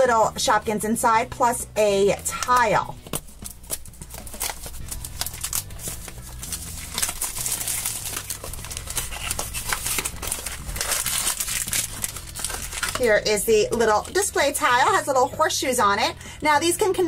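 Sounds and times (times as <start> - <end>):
plastic wrap crinkling: 2.4 - 14.8.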